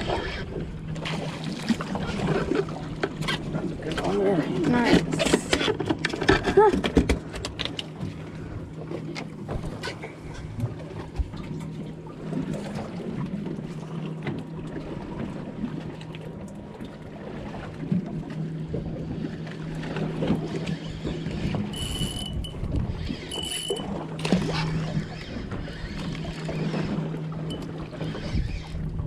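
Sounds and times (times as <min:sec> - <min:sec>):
outboard motor idling: 0:00.0 - 0:29.0
water noise: 0:00.0 - 0:29.0
wind: 0:00.0 - 0:29.0
fishing rod and reel handling: 0:20.6 - 0:28.3.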